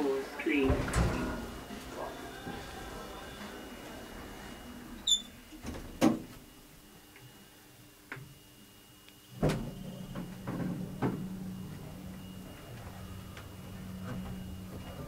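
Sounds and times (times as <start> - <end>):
lift low hum: 0.7 - 7.0, 9.3 - 15.0.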